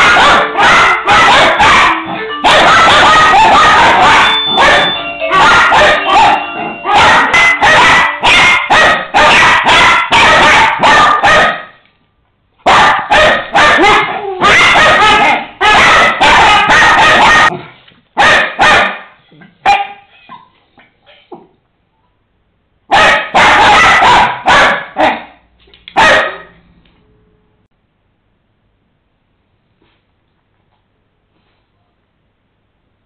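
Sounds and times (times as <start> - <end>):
dog barking loudly: 0.0 - 11.8, 12.6 - 20.1, 22.9 - 25.4, 26.0 - 26.6.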